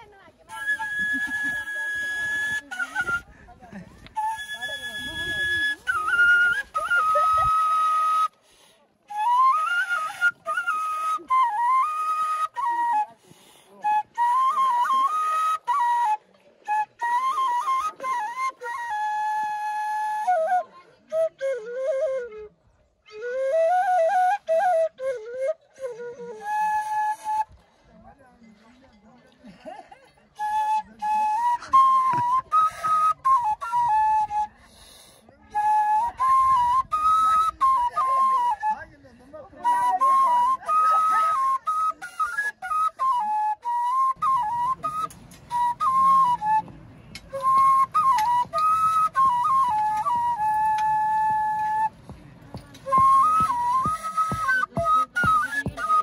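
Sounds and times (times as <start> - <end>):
solo flute melody: 0.0 - 28.5, 30.4 - 56.0.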